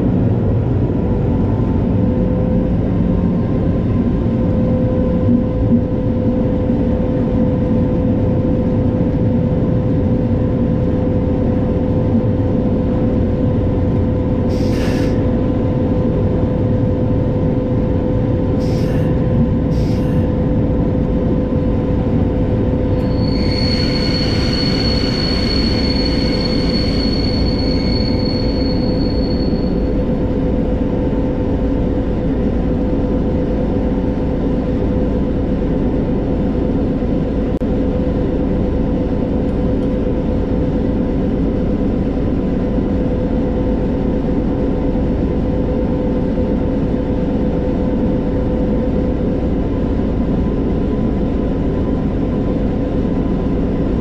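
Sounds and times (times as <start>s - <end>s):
diesel locomotive engine drumming: 0.0s - 54.0s
wheels rumbling on rails: 0.0s - 54.0s
high-pitched wheel squeal: 23.0s - 30.0s.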